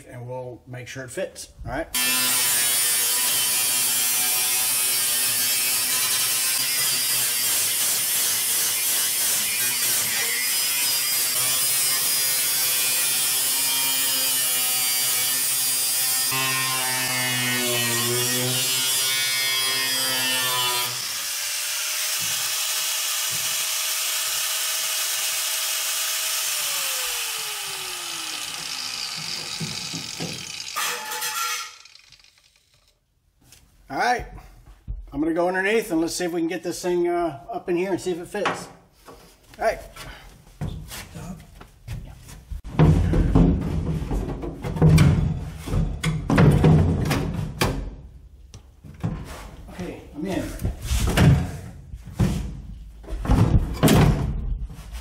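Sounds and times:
angle grinder cutting sheet steel: 2.0s - 32.9s.

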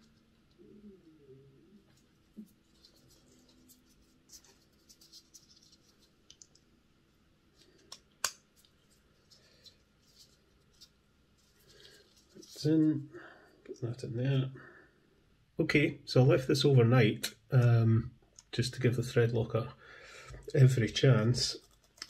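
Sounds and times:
small parts clicking and scratching: 1.9s - 6.8s, 7.6s - 12.7s, 21.4s - 22.0s.

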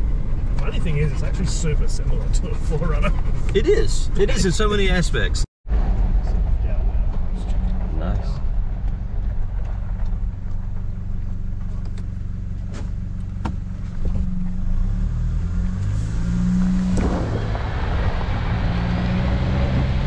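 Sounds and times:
car engine running: 0.0s - 20.0s
rushing noise of tyres and air: 5.7s - 20.0s.

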